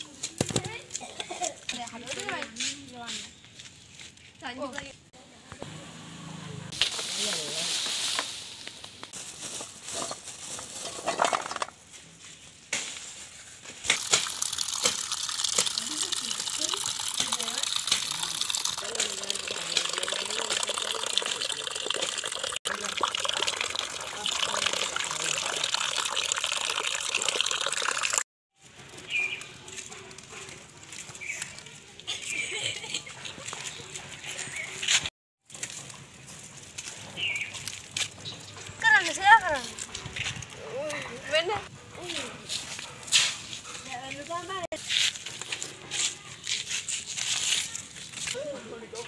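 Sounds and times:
olives clattering in metal basin: 9.4s - 11.9s, 13.9s - 25.6s
water splashing in a metal bowl: 13.9s - 28.2s.

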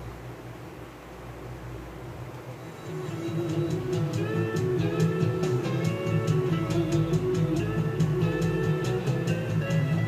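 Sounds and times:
faint steady hiss: 0.0s - 10.0s
low hum: 0.0s - 10.0s.

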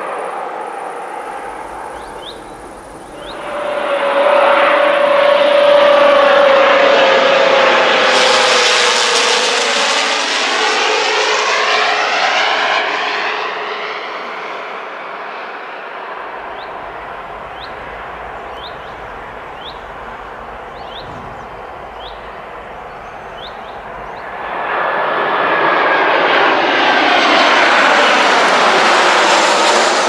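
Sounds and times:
propeller plane drone: 0.0s - 30.0s
bird chirps: 1.1s - 3.7s, 16.4s - 24.5s.

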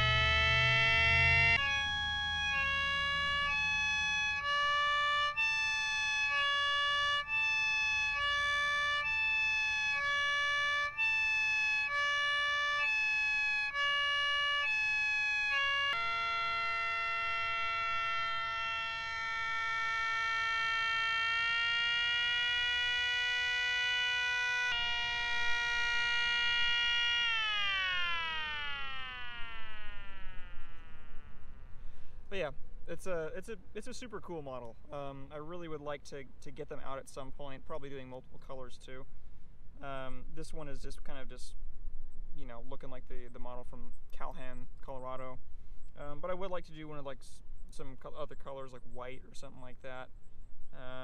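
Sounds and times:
siren sounding chords: 0.0s - 31.8s.

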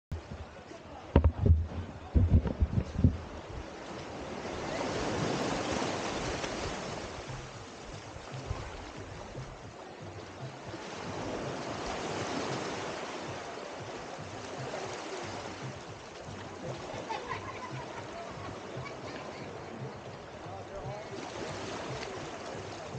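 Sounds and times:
small waves washing onto beach: 0.1s - 22.9s.

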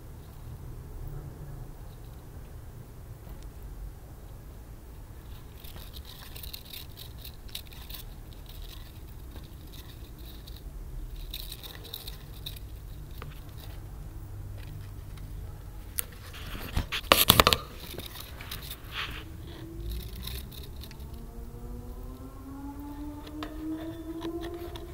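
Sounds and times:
hamster claws scratching plastic wheel: 5.2s - 21.2s, 23.3s - 24.9s
exercise wheel clattering: 5.2s - 21.3s.

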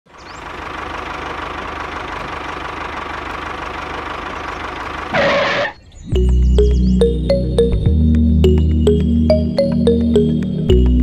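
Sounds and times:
small engine running: 0.1s - 5.8s.

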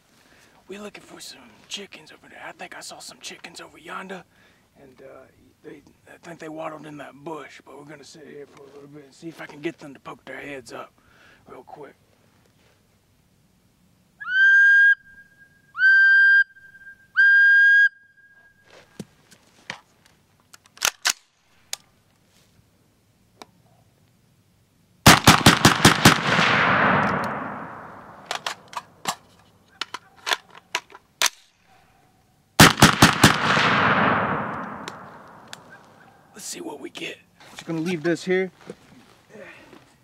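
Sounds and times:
whistle blasts: 14.2s - 18.7s
rapid gunfire bursts: 25.1s - 28.0s, 32.6s - 34.8s
gunfire echo: 25.1s - 28.7s, 32.6s - 36.0s
handling clicks: 27.0s - 29.2s, 32.7s - 36.0s.

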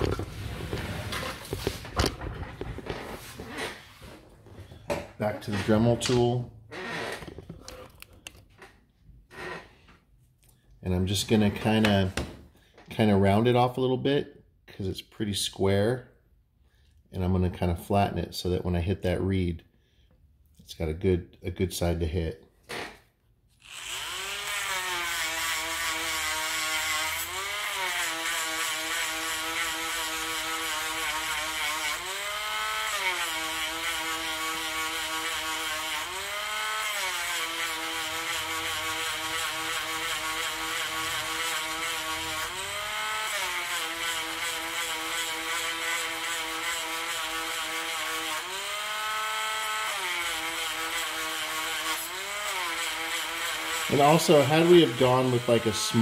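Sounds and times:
rotary tool grinding metal: 23.6s - 56.0s.

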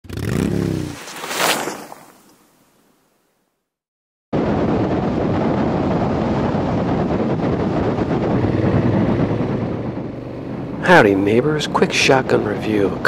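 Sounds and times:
motorcycle engine running: 0.0s - 1.0s, 7.0s - 11.4s
wind noise on microphone: 4.4s - 13.0s.

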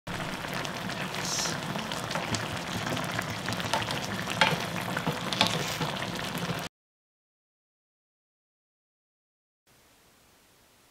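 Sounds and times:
food bubbling and sizzling in pan: 0.1s - 6.7s
wooden spatula knocking on pan: 2.1s - 6.6s.

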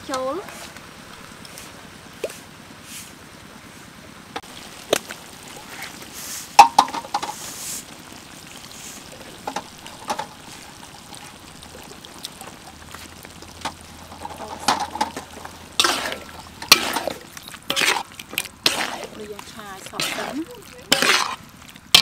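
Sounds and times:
metal spoon scraping a wok: 14.1s - 21.4s.

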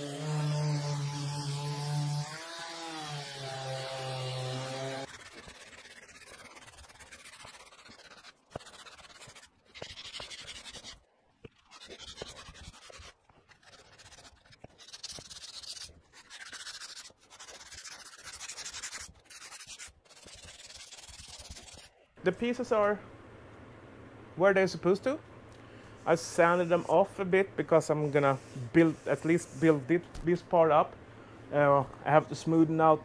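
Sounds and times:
hands rubbing fiberglass surface: 4.6s - 21.9s, 27.7s - 30.3s.

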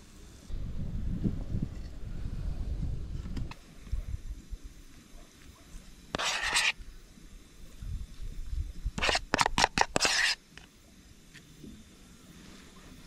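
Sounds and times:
spoon scraping toasted bread: 6.1s - 6.8s, 9.0s - 10.4s.

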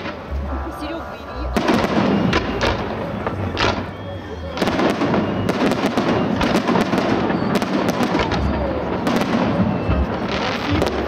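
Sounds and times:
fireworks bangs and crackling: 0.0s - 11.0s
deep firework booms: 1.4s - 11.0s.

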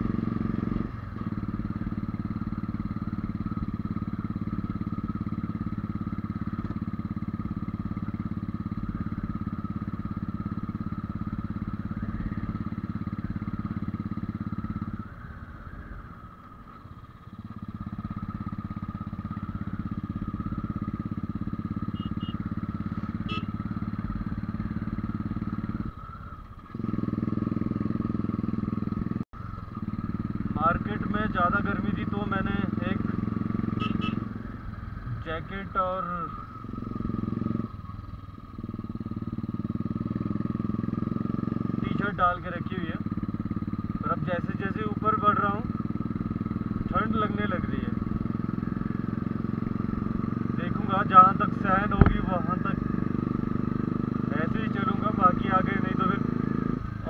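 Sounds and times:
motorcycle engine labouring: 0.0s - 57.0s.

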